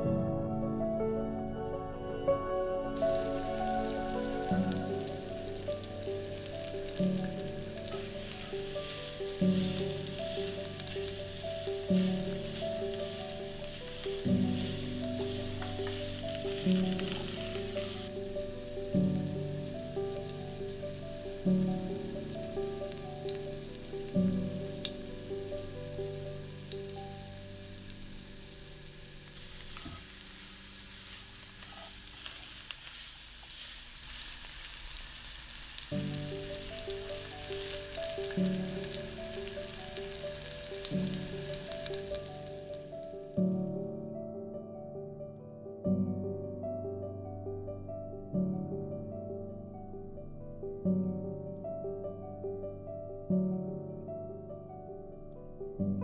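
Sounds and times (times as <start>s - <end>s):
soft background music: 0.0s - 31.9s, 35.9s - 56.0s
paste sizzling in hot oil: 3.0s - 43.4s.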